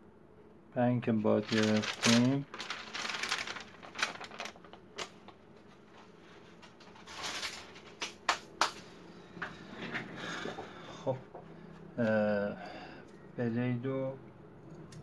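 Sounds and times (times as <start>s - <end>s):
newspaper rustling and crumpling: 1.4s - 8.2s.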